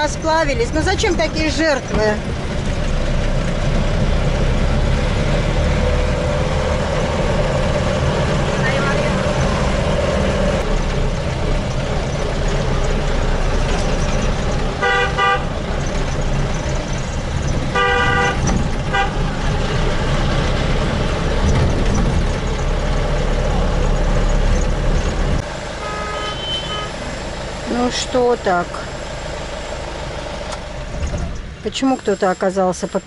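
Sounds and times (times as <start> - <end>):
engine and road rumble: 0.0 - 33.0
vehicle horns honking: 14.8 - 15.7, 17.7 - 19.4, 25.8 - 27.1.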